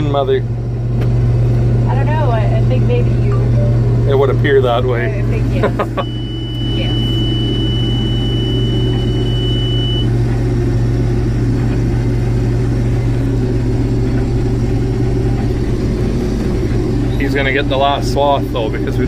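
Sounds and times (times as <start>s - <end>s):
combine harvester humming: 0.0s - 19.0s
high-pitched tone: 3.0s - 4.1s, 5.1s - 10.2s.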